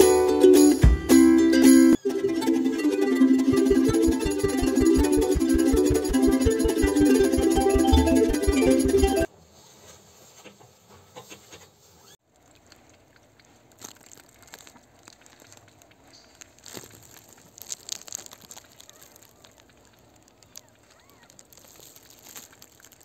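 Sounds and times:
plastic glove crinkling: 12.3s - 23.0s.

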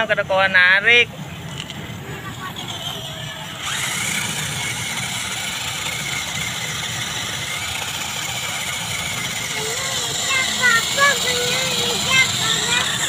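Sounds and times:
toy electric motors whining: 1.4s - 13.0s.

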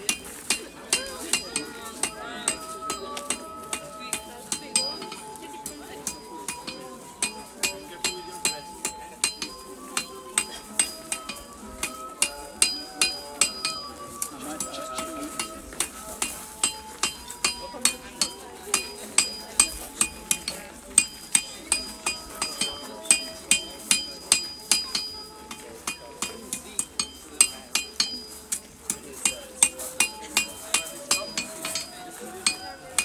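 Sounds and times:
faint tune of held notes: 0.0s - 33.0s
hammer striking ringing metal: 2.5s - 13.9s.

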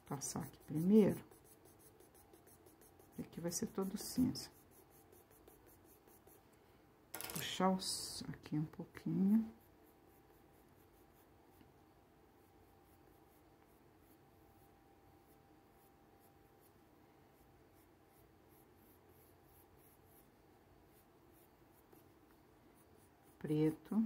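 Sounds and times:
pencil scratching on paper: 0.0s - 6.4s, 9.3s - 11.6s, 17.4s - 24.0s.

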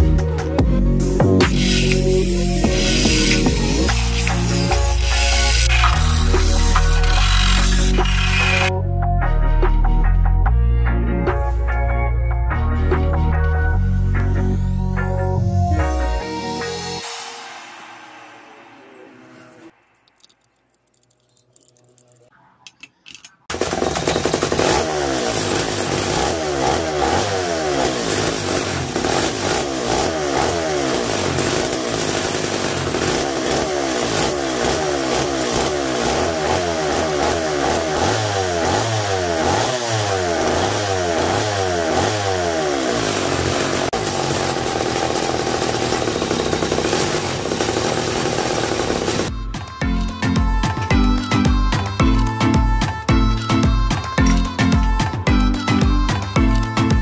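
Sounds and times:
two-stroke chainsaw engine revving: 1.2s - 8.7s, 23.5s - 49.3s.

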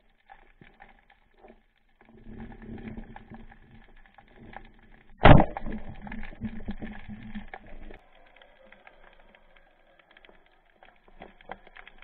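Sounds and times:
underwater clicking crackle: 0.0s - 12.0s
speargun firing crack: 5.2s - 6.0s.

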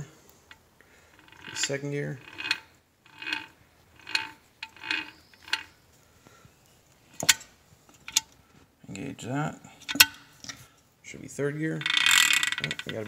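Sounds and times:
gearbox gears clattering: 1.2s - 5.7s, 11.8s - 13.0s.

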